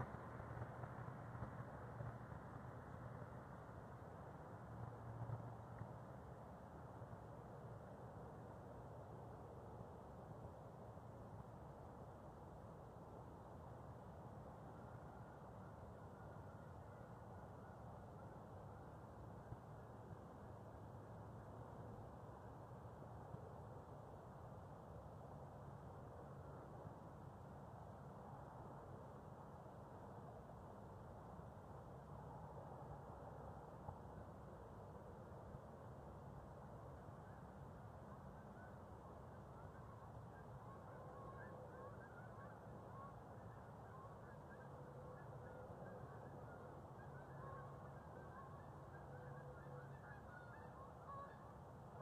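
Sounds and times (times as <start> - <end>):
distant waterfowl honking: 39.6 - 51.5.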